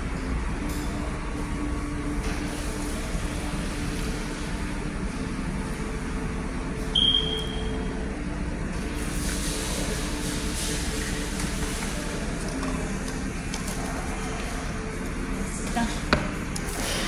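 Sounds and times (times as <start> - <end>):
restaurant dining room hum: 0.0 - 17.0
short high-pitched tone: 6.9 - 7.9.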